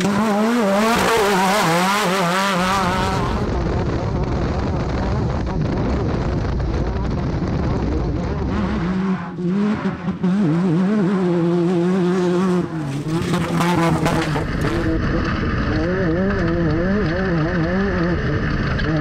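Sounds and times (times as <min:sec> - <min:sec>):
race car engine running: 0:00.0 - 0:19.0.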